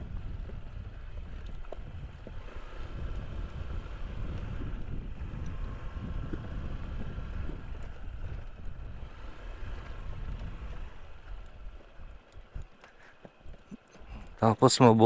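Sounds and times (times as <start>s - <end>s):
scooter engine: 0.0s - 15.0s
wind buffeting microphone: 0.0s - 15.0s.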